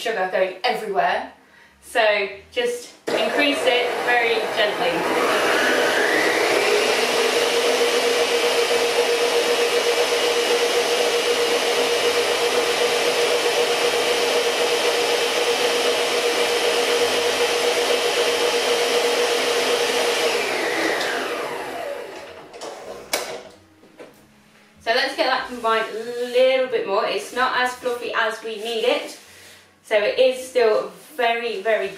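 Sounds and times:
electric stand mixer running: 3.1s - 23.4s.

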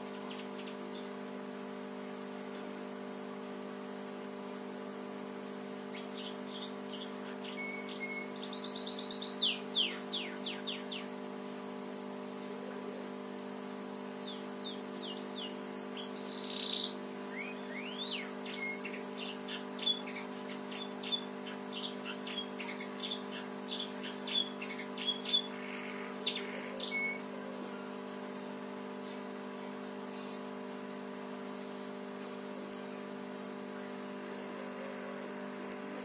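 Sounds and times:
steady low hum: 0.0s - 36.0s
canary singing chirps and trills: 0.1s - 1.2s, 5.8s - 11.2s, 13.9s - 29.4s.

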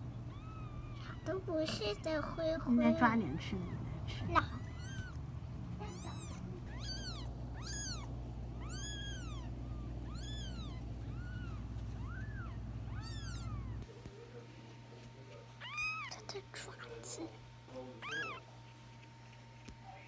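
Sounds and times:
kittens mewing: 0.0s - 13.9s, 15.5s - 16.3s, 17.8s - 18.6s.

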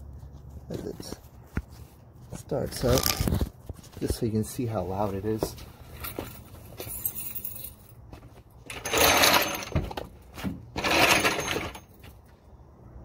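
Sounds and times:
mechanical noise under truck: 8.2s - 12.2s.

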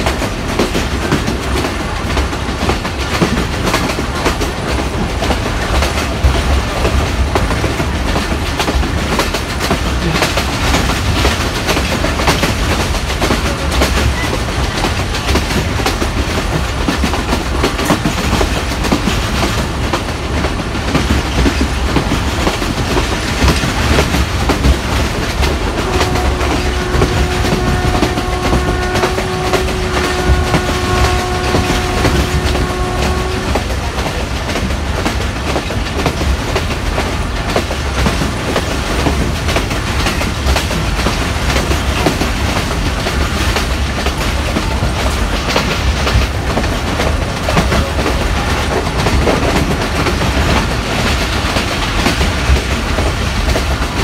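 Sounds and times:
train wheels clickety-clack: 0.0s - 54.0s
train horn blast: 25.3s - 34.2s.

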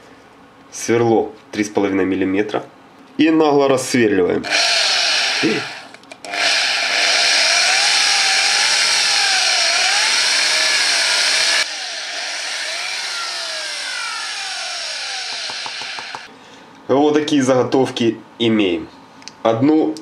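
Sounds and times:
electric drill whining: 4.5s - 16.3s.

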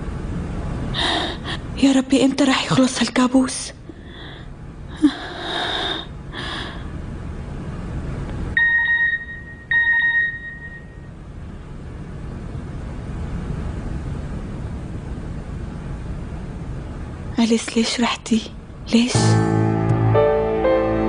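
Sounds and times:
phone electronic beeps: 8.6s - 11.0s.

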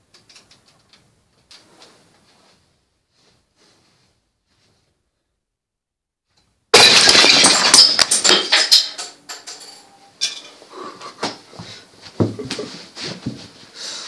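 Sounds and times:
lego model crashing on floor: 6.7s - 9.6s
plastic bricks clattering: 6.7s - 9.9s.

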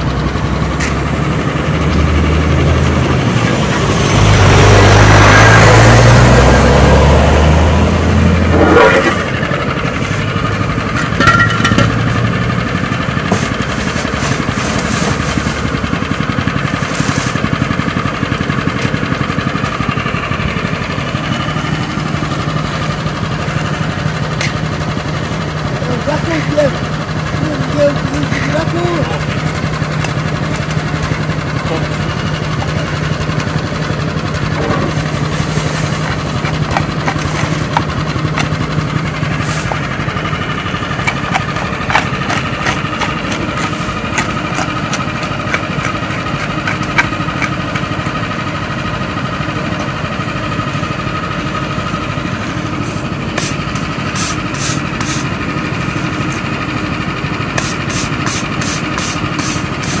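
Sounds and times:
engine idling: 0.0s - 60.0s
rake scraping and rattling on chippings: 13.2s - 17.6s, 34.5s - 47.8s
stiff broom sweeping: 13.3s - 15.7s, 16.8s - 17.5s, 35.0s - 37.8s, 39.3s - 39.9s, 53.4s - 55.3s, 57.6s - 60.0s.

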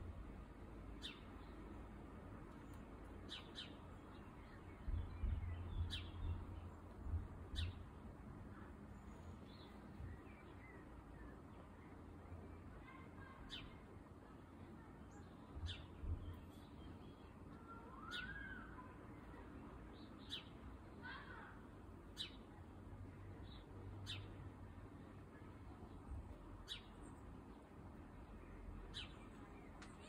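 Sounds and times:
sparrow chirping: 1.0s - 1.7s, 3.2s - 7.9s, 26.6s - 27.2s, 28.8s - 29.6s.

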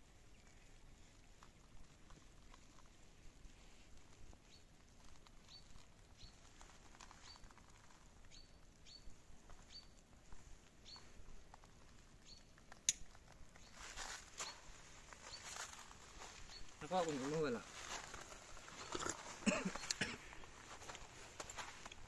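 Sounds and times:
small bird chirping: 4.3s - 20.0s.

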